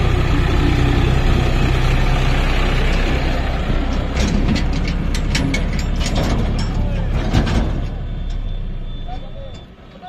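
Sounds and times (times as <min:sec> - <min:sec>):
tractor diesel engine passing: 0:00.0 - 0:09.9
steel trolley rattling and clanking: 0:03.8 - 0:08.5.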